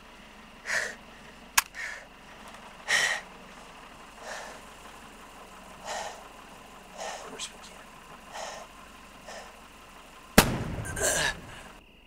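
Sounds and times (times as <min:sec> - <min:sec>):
person gasping breaths: 0:00.6 - 0:01.0, 0:05.8 - 0:06.3, 0:06.9 - 0:07.5, 0:08.3 - 0:09.6
sharp crack: 0:10.4 - 0:11.8.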